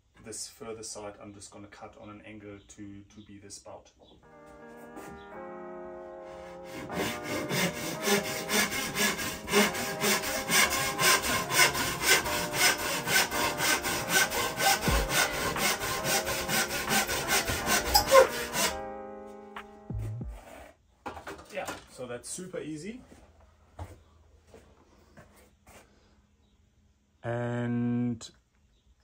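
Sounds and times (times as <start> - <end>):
handsaw cutting bamboo: 6.6 - 18.8.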